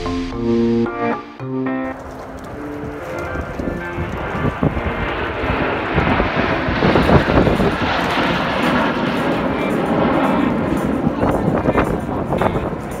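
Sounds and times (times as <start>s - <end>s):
aircraft engine rushing: 0.0s - 13.0s.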